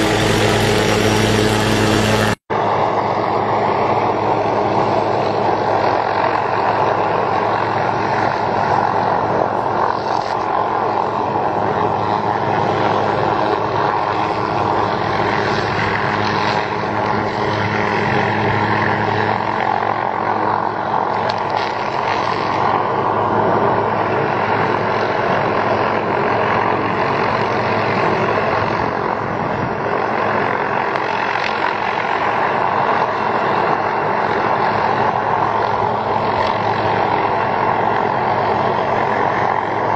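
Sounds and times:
helicopter hovering: 0.0s - 39.9s.

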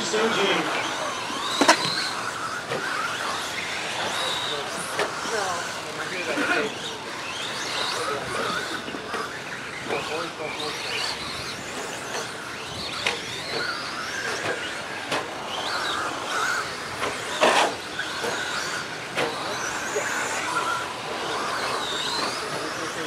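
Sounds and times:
electric motors whining: 0.0s - 23.0s
toy trucks knocking on track: 1.4s - 3.4s.

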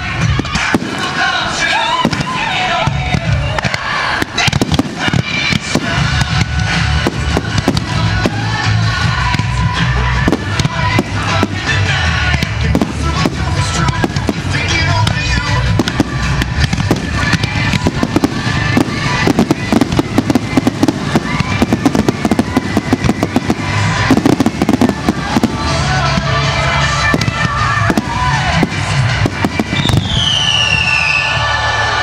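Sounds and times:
fireworks bangs and crackles: 0.0s - 32.0s
music playing: 0.0s - 32.0s.

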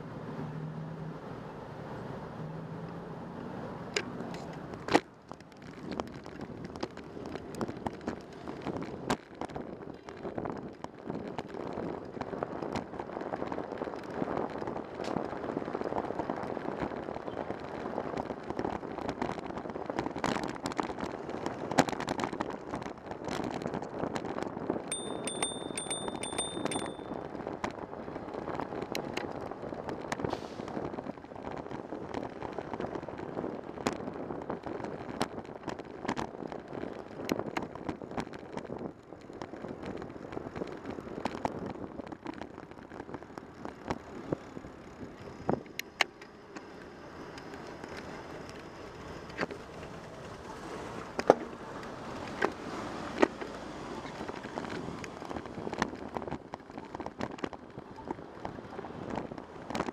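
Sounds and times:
road and tyre rumble: 0.0s - 59.9s
bicycle clicks and rattles: 3.9s - 50.5s, 51.1s - 59.9s
high trilling bell ring: 24.9s - 27.2s.

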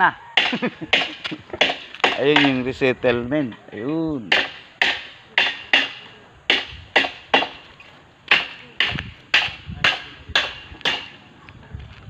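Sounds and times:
hammer blows ringing: 0.4s - 2.7s, 4.3s - 7.6s.

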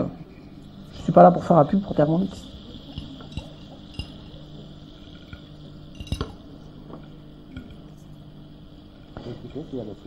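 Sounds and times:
low hum: 0.0s - 10.0s
spoon clinking on glass and china: 2.9s - 4.4s, 5.3s - 6.4s.

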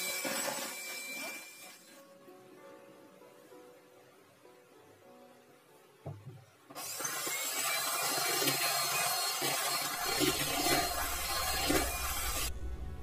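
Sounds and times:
hand mixer whirring: 0.0s - 2.0s, 6.7s - 12.5s
knock: 6.0s - 6.4s.

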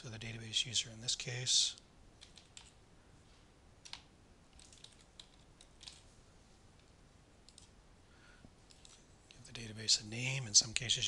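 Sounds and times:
computer keyboard keystrokes: 2.2s - 2.8s, 3.8s - 6.0s.

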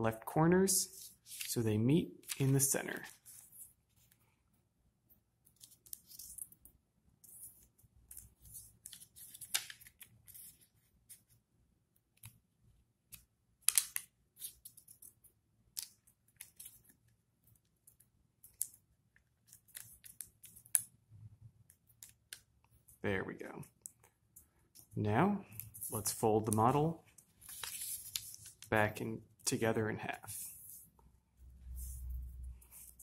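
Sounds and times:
paper being folded and creased: 1.0s - 1.5s, 2.2s - 4.2s, 5.5s - 6.5s, 7.2s - 11.4s, 13.1s - 18.8s, 19.4s - 20.9s, 25.5s - 28.8s, 31.6s - 33.0s.

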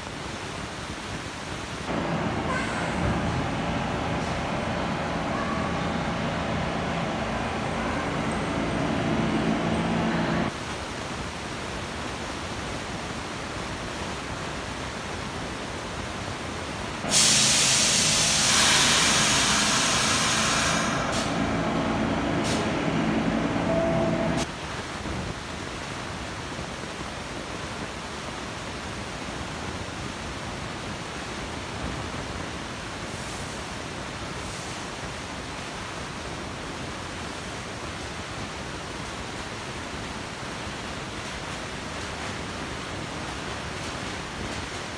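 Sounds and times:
subway train rumbling: 0.2s - 44.9s
air brake hiss: 17.0s - 21.5s, 22.4s - 22.8s.

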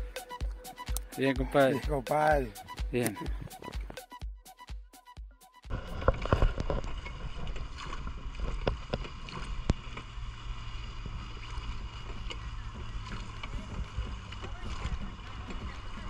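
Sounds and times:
river water rushing: 5.7s - 16.0s.

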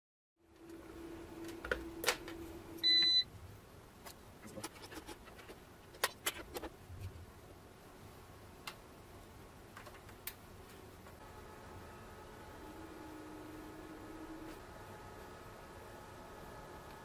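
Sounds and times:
steady low hum: 0.4s - 9.7s, 10.4s - 17.0s
short electronic beep: 2.8s - 3.3s.

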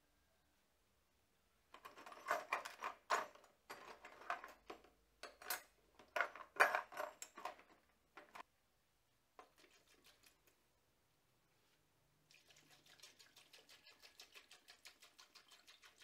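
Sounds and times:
metal parts clattering in plastic tub: 1.8s - 8.4s.

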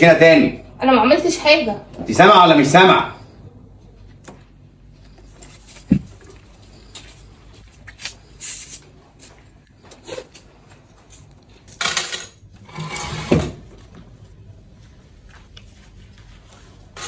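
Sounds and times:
soft handling clicks and rustles: 13.8s - 16.9s.

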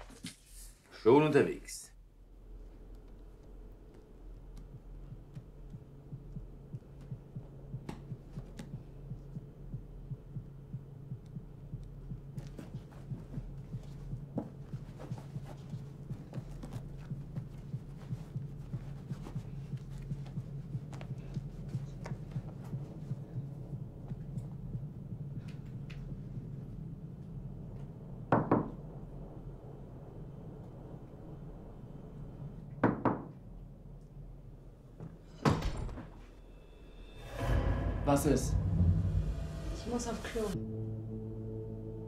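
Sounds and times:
low hum: 2.2s - 32.7s, 33.7s - 42.0s
heartbeat-like pulse: 4.3s - 27.7s, 37.0s - 41.9s.

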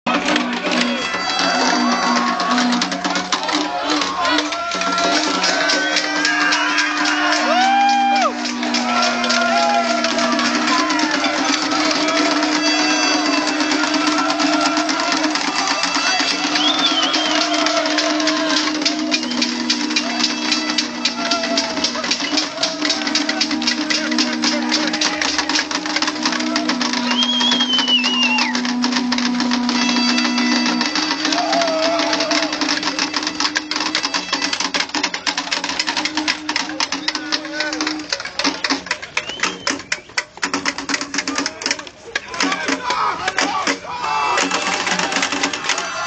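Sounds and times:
crowd noise: 0.0s - 46.0s
people shouting: 0.1s - 38.7s, 41.3s - 46.0s
clattering and banging of objects: 0.1s - 46.0s
plastic horns droning: 0.1s - 46.0s
wavering high tone: 5.5s - 38.2s
falling whistle: 16.0s - 19.7s, 26.2s - 32.5s, 39.2s - 40.2s
loud buzzing drone: 22.9s - 31.5s.

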